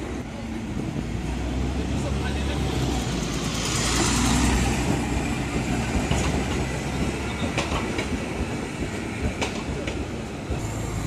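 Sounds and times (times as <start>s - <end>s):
bus driving past: 0.0s - 7.6s
tram rolling: 0.0s - 11.0s
tram wheels clacking over rail joints: 0.0s - 11.0s.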